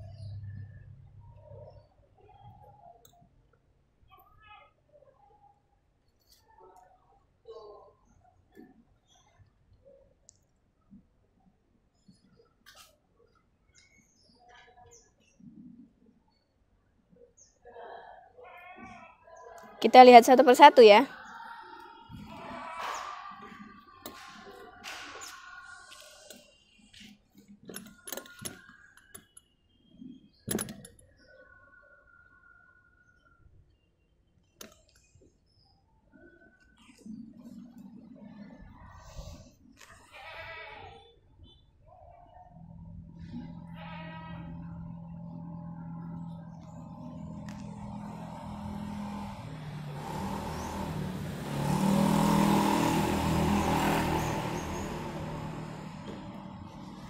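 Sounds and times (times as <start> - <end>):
motor vehicle passing by: 22.1 - 26.2, 42.6 - 57.0
handling clicks and knocks: 27.6 - 29.4, 30.5 - 31.0.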